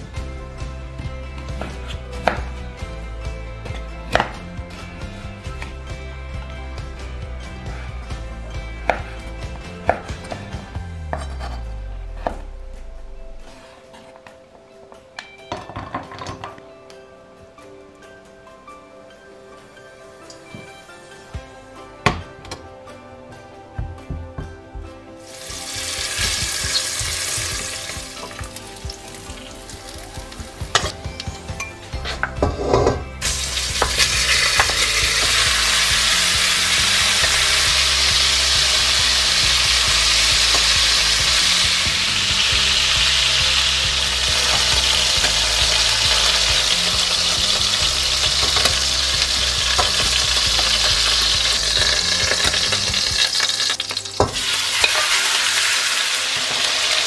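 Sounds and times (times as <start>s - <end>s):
loud steady sizzle of searing meat: 25.2s - 30.9s, 33.2s - 57.0s
bacon frying in a pot: 25.2s - 31.0s, 32.5s - 57.0s
metal tongs turning meat: 44.1s - 55.7s.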